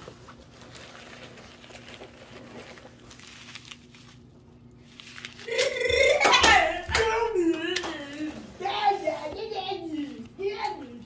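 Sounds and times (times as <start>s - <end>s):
fabric bag rustling: 0.0s - 5.5s
paper packets crinkling: 0.0s - 10.6s.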